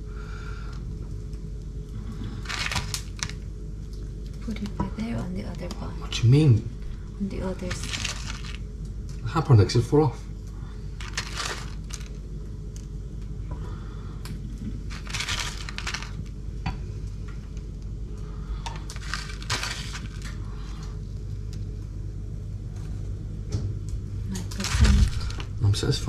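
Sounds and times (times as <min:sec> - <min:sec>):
steady low hum: 0:00.0 - 0:26.0
crinkly crunching or rustling: 0:02.0 - 0:03.5, 0:04.2 - 0:09.3, 0:10.8 - 0:13.0, 0:14.4 - 0:16.4, 0:18.6 - 0:21.8, 0:24.3 - 0:26.0.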